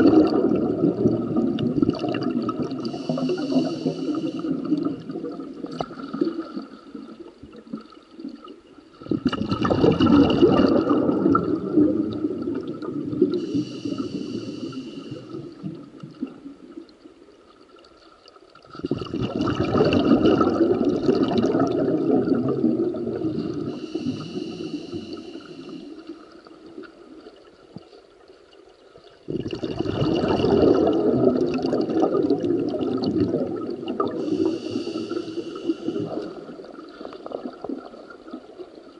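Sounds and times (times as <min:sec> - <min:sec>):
exhaled bubbles gurgling underwater: 0:00.0 - 0:38.9
regulator hiss on inhale: 0:02.6 - 0:04.9, 0:13.2 - 0:15.7, 0:23.4 - 0:26.6, 0:34.1 - 0:37.4.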